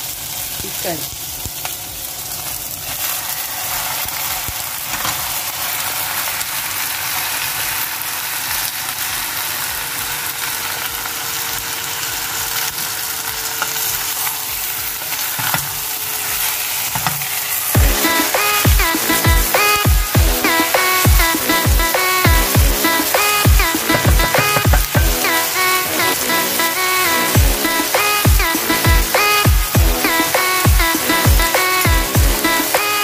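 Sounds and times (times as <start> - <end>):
food sizzling in oil: 0.0 - 33.0
wooden spatula knocking pot: 23.9 - 25.2.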